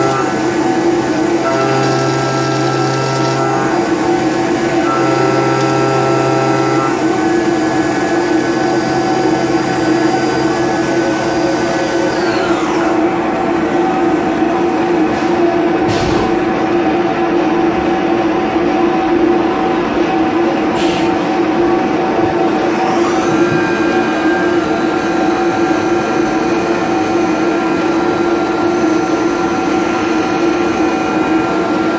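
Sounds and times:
machine spindle whine: 0.0s - 31.9s.

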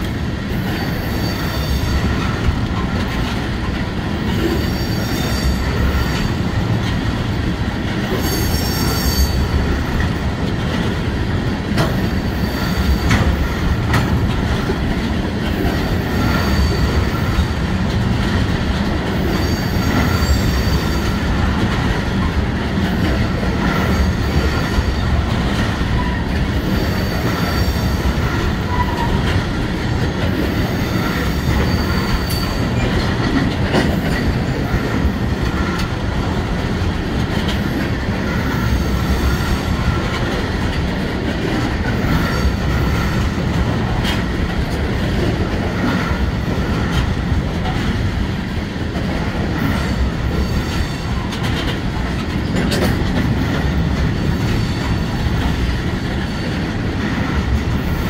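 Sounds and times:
freight train rumbling past: 0.0s - 58.0s
train wheel clacks: 0.0s - 58.0s
high-pitched wheel squeals: 4.6s - 6.3s, 8.2s - 9.6s, 31.4s - 32.8s.

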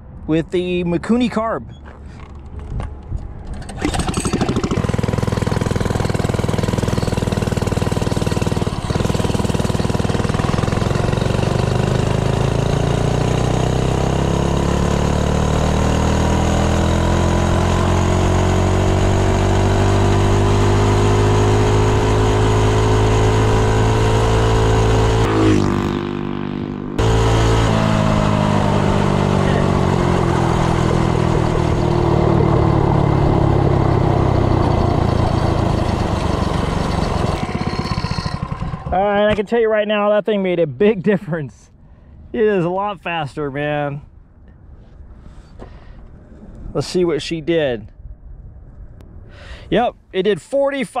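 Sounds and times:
small engine at full throttle: 3.6s - 39.4s.

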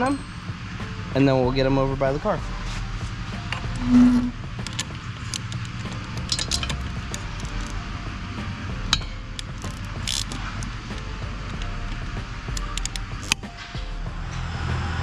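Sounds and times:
quiet background music: 0.0s - 15.0s
wrenches clinking on bolts: 4.6s - 7.8s.

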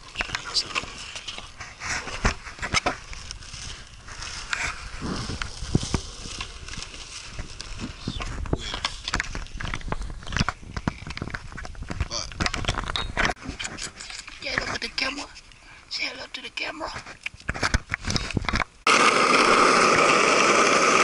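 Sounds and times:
skateboard rolling on concrete: 0.0s - 12.1s, 18.0s - 21.0s
camera rubbing against clothing: 0.0s - 15.4s.

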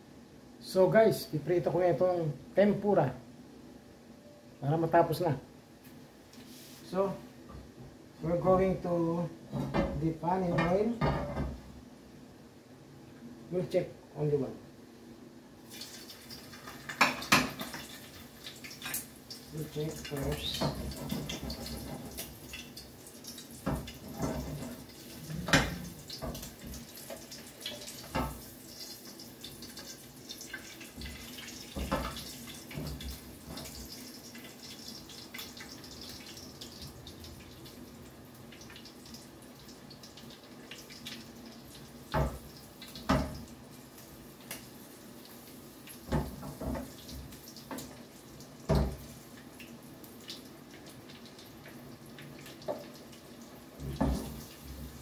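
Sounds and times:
oil sizzling in a frying pan: 15.5s - 55.0s.

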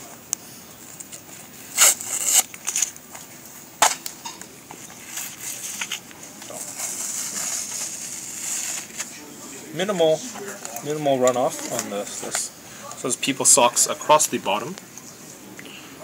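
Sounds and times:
paper and fabric rustling: 1.1s - 12.5s
paper packaging ripping: 1.2s - 9.2s.

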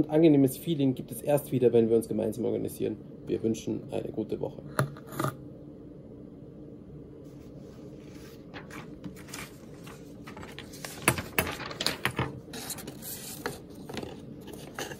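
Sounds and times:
steady low hum: 0.0s - 14.9s
paper and cardboard rustling: 7.9s - 14.9s.

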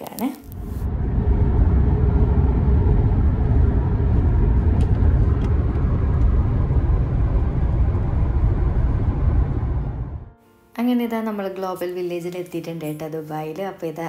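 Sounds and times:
car road and engine rumble: 0.4s - 10.3s.

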